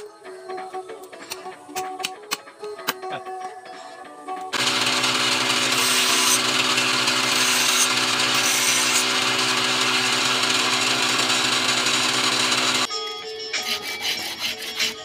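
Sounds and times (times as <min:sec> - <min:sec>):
bench grinder motor hum: 0:04.6 - 0:12.9.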